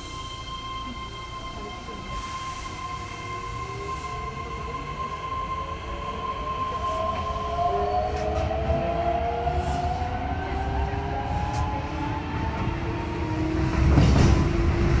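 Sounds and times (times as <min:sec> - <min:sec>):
steady high tone: 0:00.0 - 0:08.1
train wheels rumbling on rail: 0:00.0 - 0:15.0.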